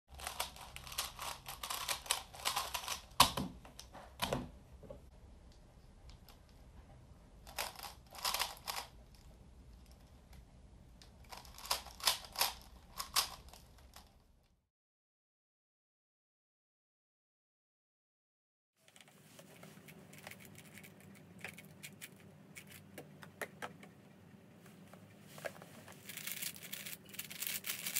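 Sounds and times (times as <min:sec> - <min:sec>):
speed cube clicking: 0:00.2 - 0:03.1, 0:07.5 - 0:08.9.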